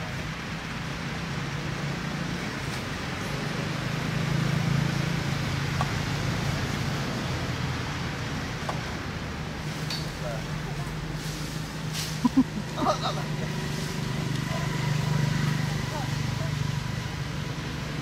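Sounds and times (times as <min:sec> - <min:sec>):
broad hiss: 0:11.0 - 0:12.4.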